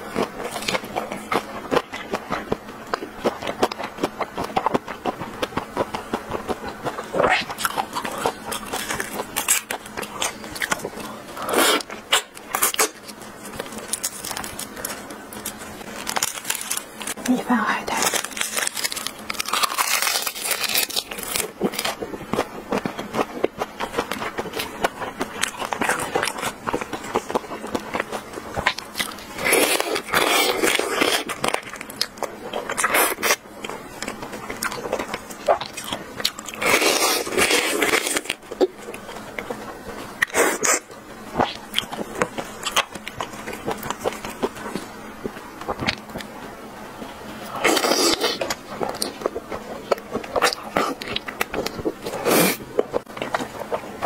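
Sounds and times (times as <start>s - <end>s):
chewing: 0.0s - 17.4s, 18.0s - 46.3s, 47.3s - 54.0s
loud crunching or rustling: 0.0s - 45.0s, 47.2s - 54.0s
prawn shell being peeled: 0.4s - 23.1s.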